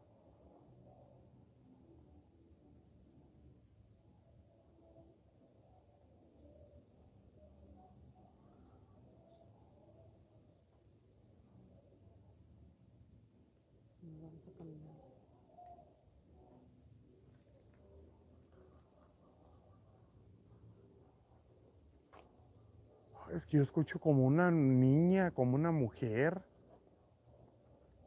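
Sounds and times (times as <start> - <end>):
crickets chirping: 0.0 - 28.0.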